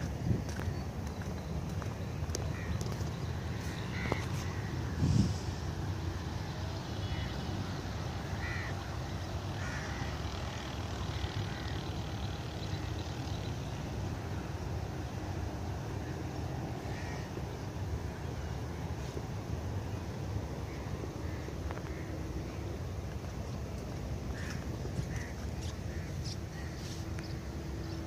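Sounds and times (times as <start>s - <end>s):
low outdoor rumble: 0.0s - 28.0s
crows cawing: 2.5s - 2.9s, 3.5s - 4.8s, 8.4s - 8.8s, 9.6s - 10.2s, 11.5s - 11.8s, 16.9s - 17.3s, 20.7s - 22.6s, 24.3s - 26.9s.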